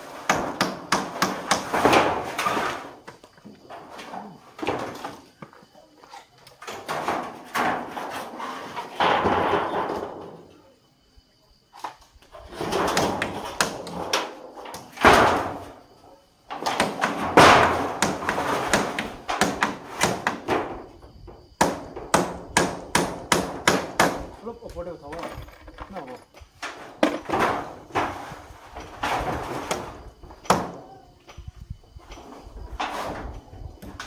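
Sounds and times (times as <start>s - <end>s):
metal roofing sheets scraping and clattering: 0.0s - 10.6s, 11.8s - 15.8s, 16.5s - 22.1s, 25.1s - 34.0s
sharp knocks: 21.6s - 24.3s.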